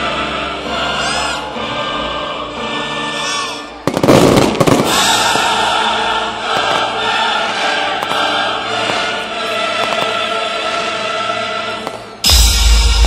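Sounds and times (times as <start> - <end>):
music with choir: 0.0 - 13.0
fireworks bangs and crackles: 3.8 - 5.8, 6.5 - 7.1, 8.0 - 10.3, 11.8 - 13.0.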